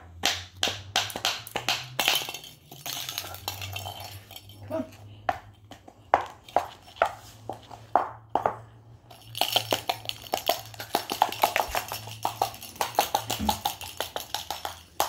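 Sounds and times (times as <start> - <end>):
bird claws clicking on hard floor: 9.3 - 15.0.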